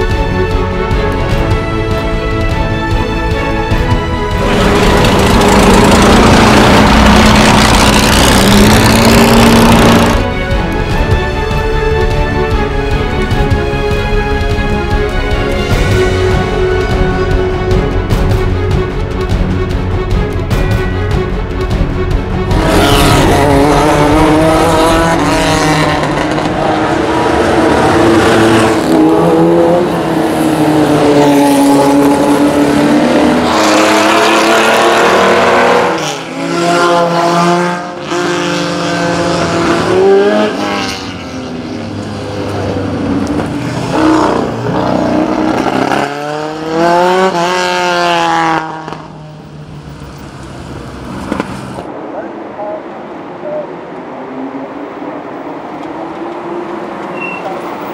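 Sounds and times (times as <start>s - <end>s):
race car engines revving hard: 4.3s - 10.3s, 22.5s - 51.9s.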